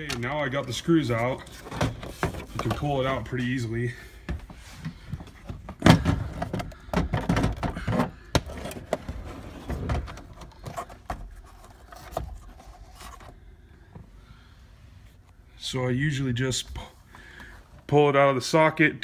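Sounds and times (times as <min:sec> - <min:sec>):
plastic knocking and scraping: 0:01.4 - 0:02.9, 0:04.8 - 0:13.3.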